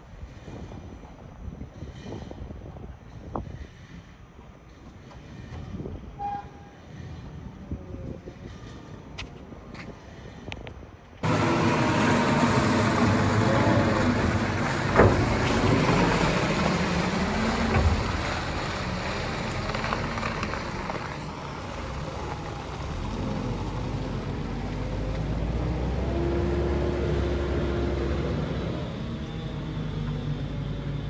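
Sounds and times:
diesel engine running: 11.2s - 31.0s.

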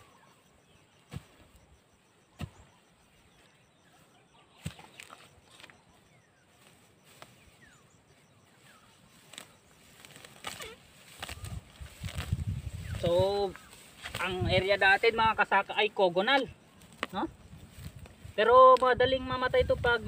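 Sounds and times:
digging tool chopping into soil: 2.3s - 2.8s, 4.6s - 5.7s
soil scuffing by hand: 4.6s - 6.0s, 8.6s - 14.5s.

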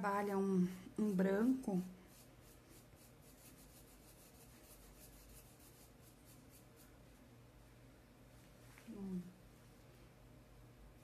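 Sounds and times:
paintbrush scratching on sackcloth: 0.2s - 7.0s.

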